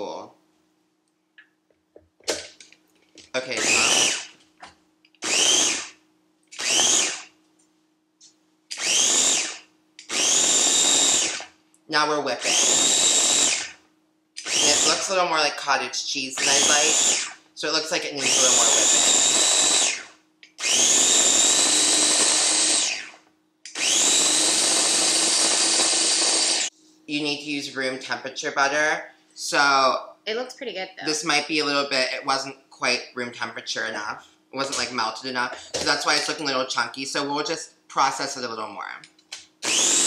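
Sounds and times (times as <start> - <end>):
food chopper motor whine: 3.4 - 4.4, 5.2 - 7.4, 8.7 - 11.6, 12.2 - 13.8, 14.4 - 15.4, 16.4 - 17.4, 18.2 - 26.7, 39.6 - 40.0.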